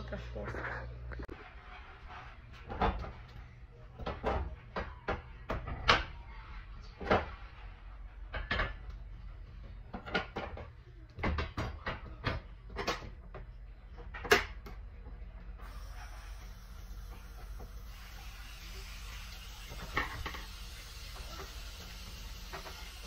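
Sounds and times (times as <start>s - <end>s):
kitchen things knocking and clacking: 2.6s - 6.2s, 6.8s - 7.5s, 8.2s - 15.2s, 19.3s - 23.0s.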